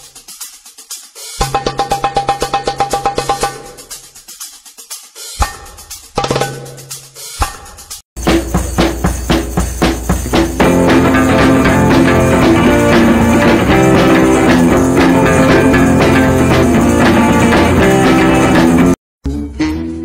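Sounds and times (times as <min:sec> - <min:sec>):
background music with guitar: 0:10.2 - 0:20.0.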